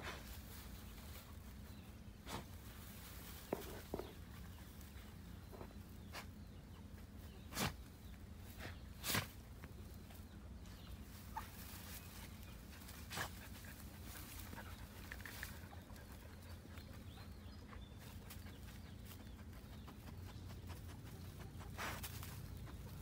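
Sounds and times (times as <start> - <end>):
rustling through dry grass: 0.0 - 17.3, 18.0 - 23.0
dogs sniffing: 11.1 - 23.0.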